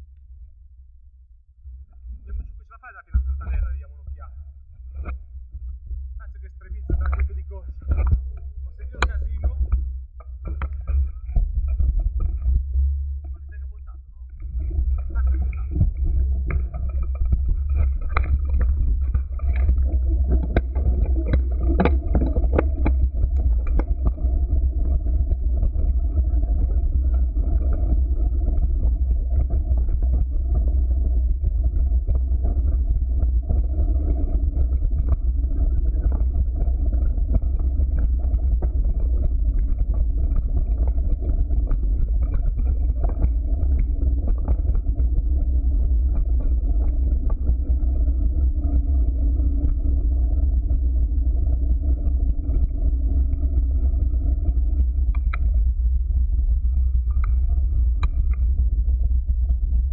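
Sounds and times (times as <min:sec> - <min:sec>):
bike tyres rumbling on trail: 0:14.4 - 0:59.9.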